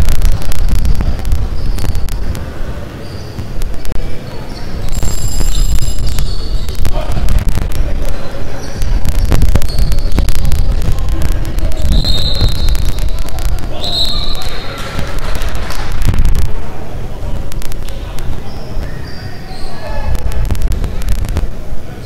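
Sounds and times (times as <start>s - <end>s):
steady low rumble: 0.0s - 2.9s, 5.0s - 8.2s, 8.8s - 13.8s, 20.1s - 21.9s
indistinct voices: 0.0s - 22.0s
sneaker squeaks: 1.5s - 2.2s, 2.8s - 6.9s, 8.0s - 10.5s, 11.7s - 13.1s, 13.7s - 15.1s, 17.8s - 20.1s.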